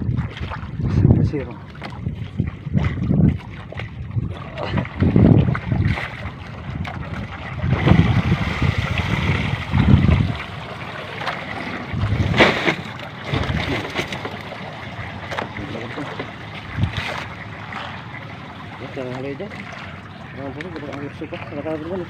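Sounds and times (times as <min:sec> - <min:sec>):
wind on microphone: 0:00.0 - 0:10.6, 0:11.5 - 0:14.2, 0:16.6 - 0:17.2
water lapping at boat: 0:00.0 - 0:22.0
knocks and rustles of fishing net: 0:12.0 - 0:14.7.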